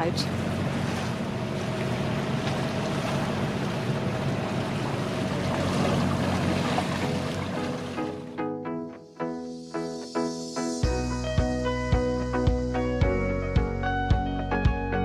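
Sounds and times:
wind: 0.0 - 8.4
water noise: 0.0 - 8.6
boat engine droning: 0.0 - 8.9.

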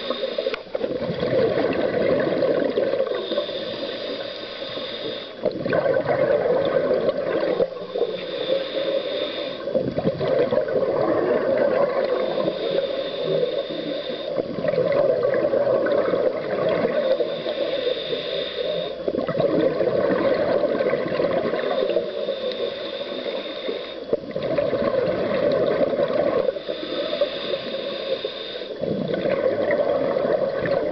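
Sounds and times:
regulator hissing inhale: 0.0 - 1.1, 2.5 - 5.6, 7.4 - 10.0, 12.0 - 14.8, 16.8 - 19.2, 21.4 - 24.4, 26.0 - 29.4
gurgling exhaled bubbles: 0.0 - 3.9, 5.4 - 8.2, 9.8 - 13.7, 14.4 - 17.4, 19.1 - 22.2, 24.3 - 27.9, 28.8 - 30.9.

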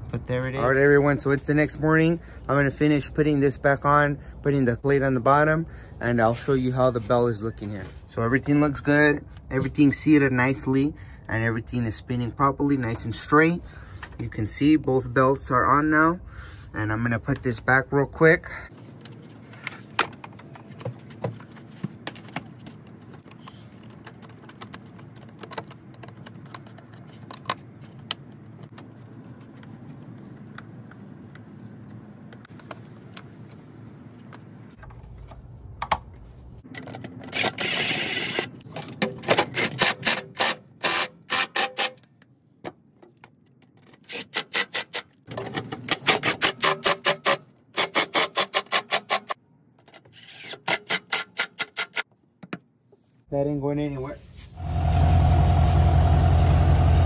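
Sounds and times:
parts clicking and rattling: 18.9 - 52.6.

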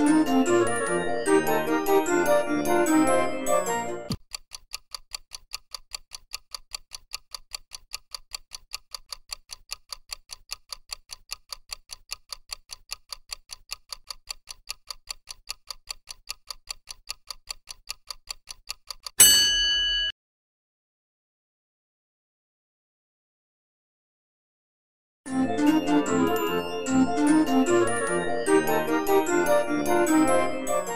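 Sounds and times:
countdown timer ticking: 0.0 - 19.2, 25.3 - 30.9
keyboard jingle: 25.3 - 30.9.

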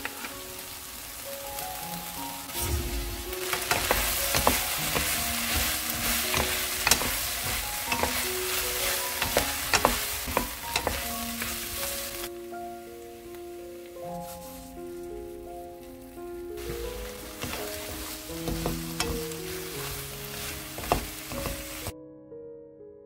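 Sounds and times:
food sizzling in a frying pan: 0.0 - 21.9
utensil scraping a pan: 3.0 - 12.3, 16.6 - 21.9.

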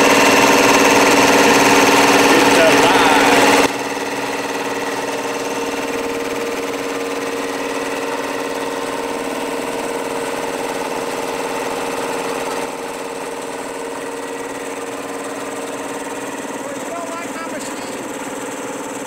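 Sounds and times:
air compressor running: 0.0 - 19.0.

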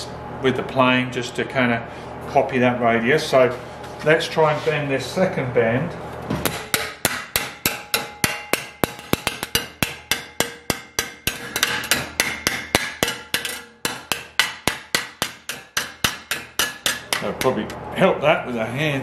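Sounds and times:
hammer tapping on sheet steel: 6.4 - 17.8.

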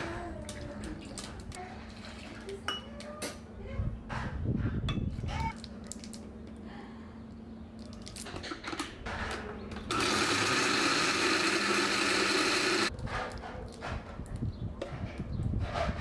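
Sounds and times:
blender crushing ice: 9.9 - 12.9.

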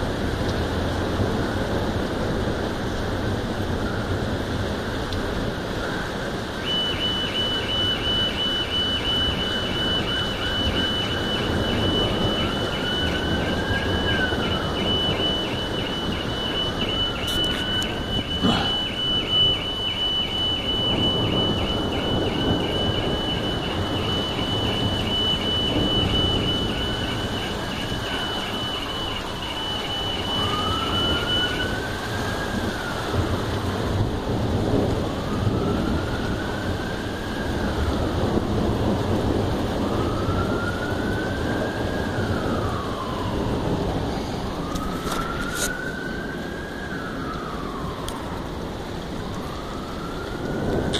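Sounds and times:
car alarm beeping and wailing: 6.4 - 33.2.

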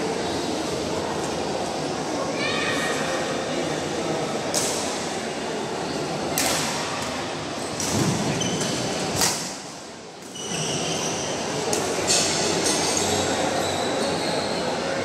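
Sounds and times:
sports hall background noise: 0.0 - 15.0
racket hitting shuttlecock: 6.4 - 6.8.

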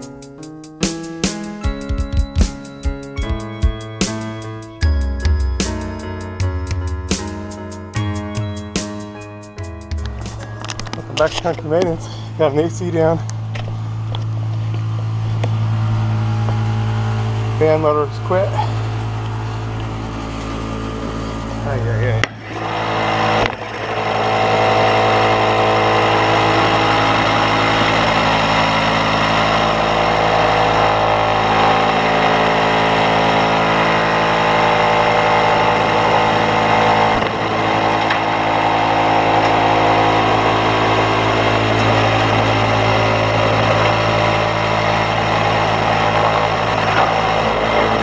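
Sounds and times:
air conditioner humming: 10.1 - 29.2.

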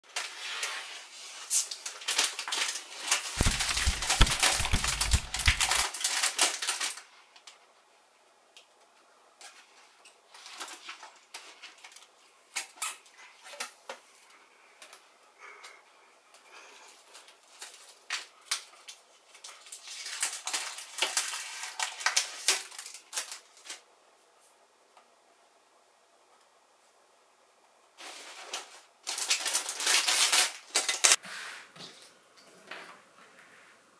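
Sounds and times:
paper and plastic wrap crinkling: 0.1 - 7.1, 17.0 - 23.9, 28.0 - 31.2
clicks and taps: 3.4 - 5.8.

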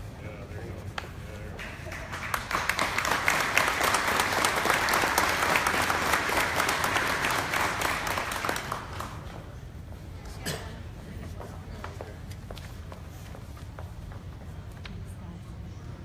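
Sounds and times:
audience clapping: 1.6 - 9.6.

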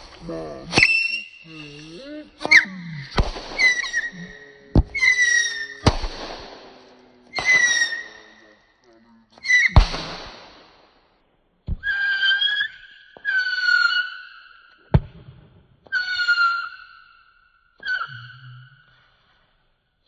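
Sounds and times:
firework bangs: 0.0 - 8.6, 9.6 - 11.1
firework whistles: 0.7 - 8.5, 9.4 - 10.9, 11.8 - 14.6, 15.9 - 17.0.

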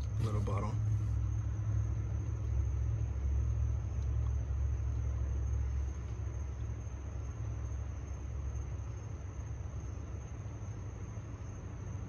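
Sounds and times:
low rumble: 0.0 - 9.0.

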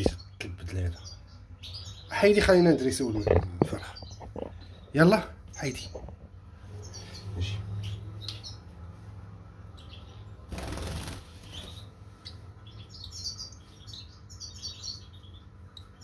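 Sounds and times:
bird wings fluttering: 10.5 - 11.8.

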